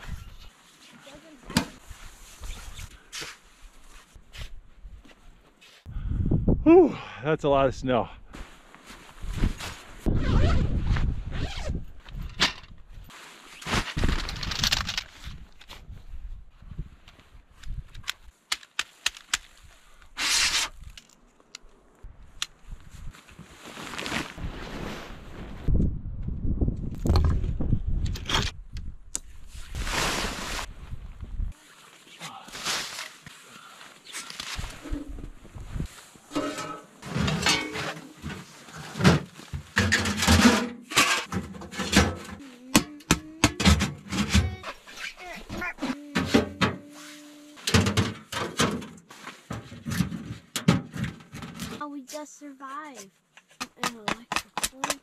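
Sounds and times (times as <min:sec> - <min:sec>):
tent fabric rustling: 0:00.0 - 0:05.9, 0:08.4 - 0:11.9, 0:13.0 - 0:14.7, 0:22.7 - 0:25.7, 0:29.4 - 0:39.8, 0:46.8 - 0:47.7, 0:49.0 - 0:50.5
metal stove parts knocking and scraping: 0:36.3 - 0:38.2, 0:39.8 - 0:42.4.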